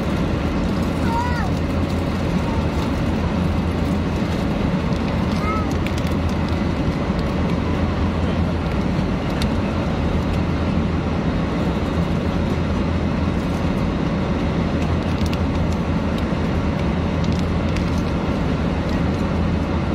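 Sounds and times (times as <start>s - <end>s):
airliner cabin drone: 0.0s - 19.9s.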